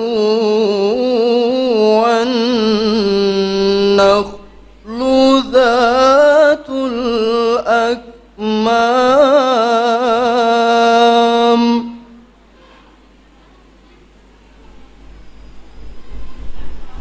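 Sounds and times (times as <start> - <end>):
man reciting melodically into microphone: 0.0 - 12.2.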